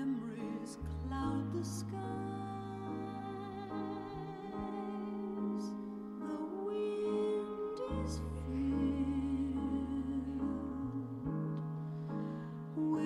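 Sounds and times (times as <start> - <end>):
slow music with wavering notes: 0.0 - 13.0.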